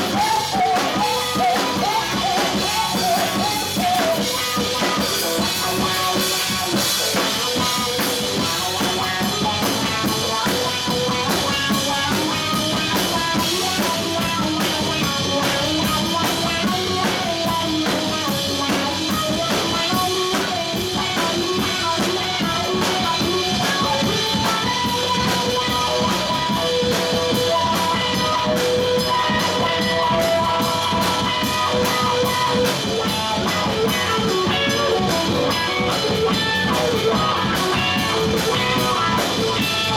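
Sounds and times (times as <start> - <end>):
bass guitar: 0.0 - 39.9
drum kit beat: 0.0 - 39.9
electric guitar: 0.0 - 39.9.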